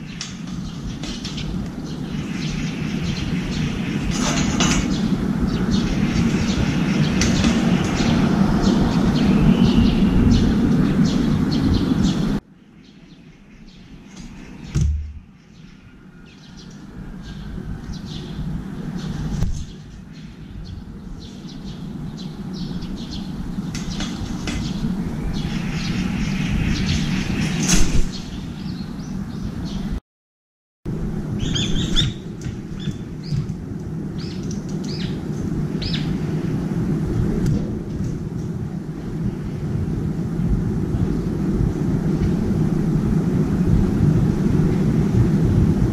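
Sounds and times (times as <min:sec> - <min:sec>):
low city rumble: 0:00.0 - 0:30.0, 0:30.9 - 0:45.9
small birds chirping: 0:00.0 - 0:30.0, 0:31.4 - 0:36.4
bird shrill calls: 0:31.4 - 0:32.2.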